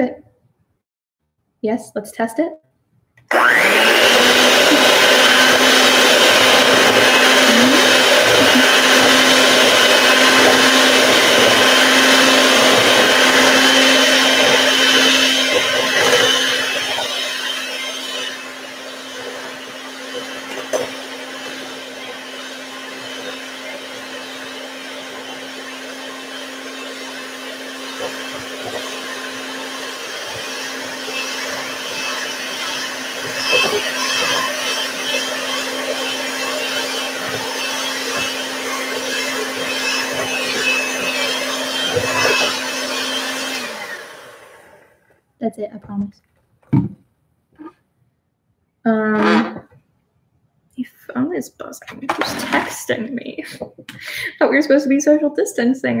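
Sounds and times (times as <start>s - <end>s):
electric hand mixer whining: 3.2s - 45.1s.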